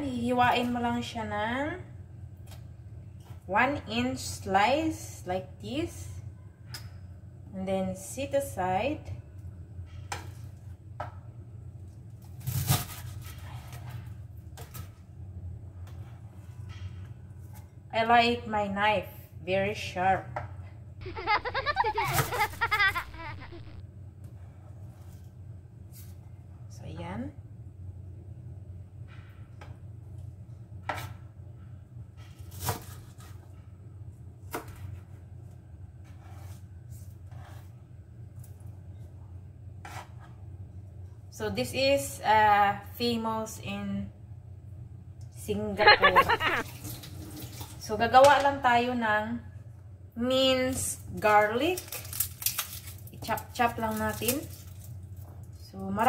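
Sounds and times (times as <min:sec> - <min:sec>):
steady low hum: 0:14.0 - 0:32.2.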